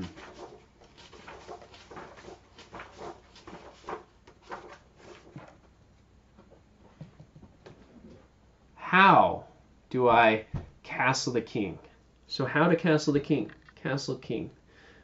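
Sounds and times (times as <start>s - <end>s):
book pages rustling: 0.0s - 5.7s.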